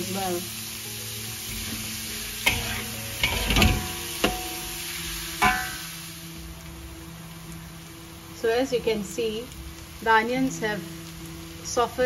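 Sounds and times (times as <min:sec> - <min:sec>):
oil sizzling: 0:00.0 - 0:12.0
spatula scraping wok: 0:01.4 - 0:05.9
spatula clanking on wok: 0:01.5 - 0:05.9.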